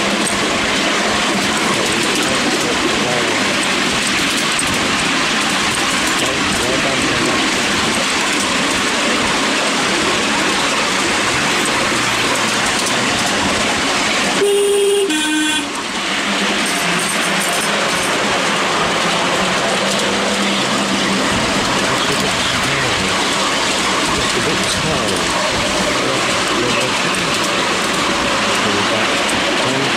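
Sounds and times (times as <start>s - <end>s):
train wheels rattling on track: 0.0s - 29.9s
two-tone train horn: 14.4s - 15.8s.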